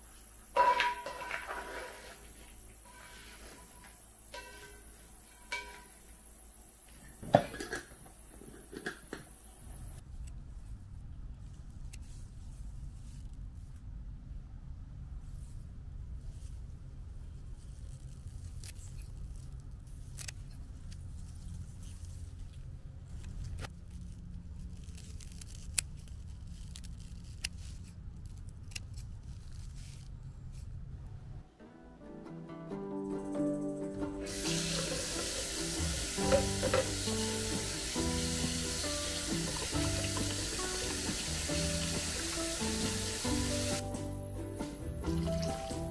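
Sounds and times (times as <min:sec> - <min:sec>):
spoon scraping skillet: 0:00.6 - 0:06.0, 0:07.1 - 0:09.3, 0:34.3 - 0:42.9
scissors snipping stalks: 0:20.1 - 0:20.6.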